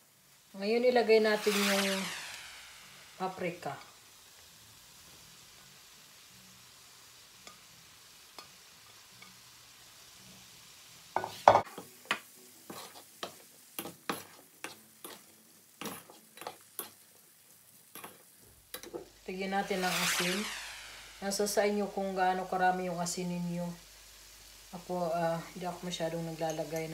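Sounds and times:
vegetables sizzling in a pan: 0:00.0 - 0:26.9
spatula scraping a pan: 0:12.7 - 0:17.0.

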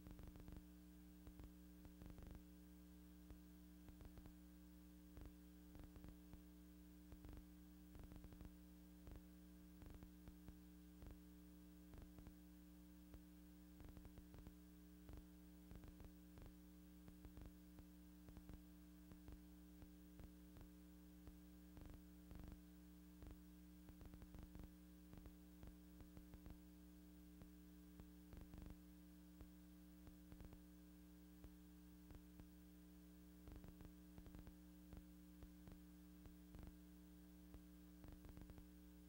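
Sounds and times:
low electrical hum: 0:00.0 - 0:39.0.

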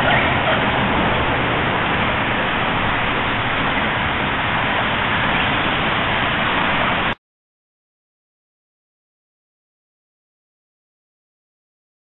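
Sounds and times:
highway traffic rush: 0:00.0 - 0:07.2.

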